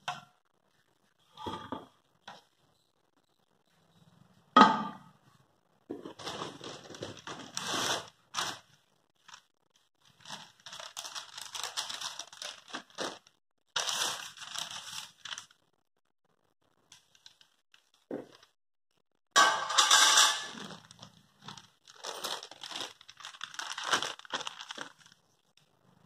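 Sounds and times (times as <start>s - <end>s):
plastic wrapping crinkling: 6.0s - 15.7s, 16.9s - 18.6s, 20.5s - 25.6s.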